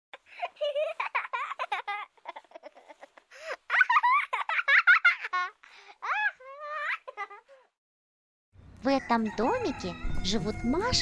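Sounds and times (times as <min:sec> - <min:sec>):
young children laughing: 0:00.2 - 0:07.8.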